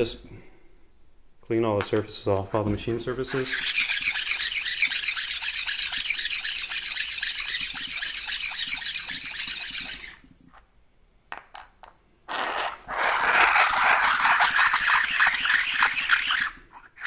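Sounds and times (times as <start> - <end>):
scrubbing metal surfaces: 1.8 - 10.2.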